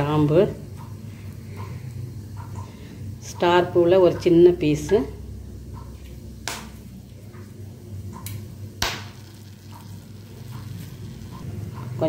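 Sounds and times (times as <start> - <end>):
low steady hum: 0.0 - 12.0
spices crackling in hot oil: 8.2 - 11.5.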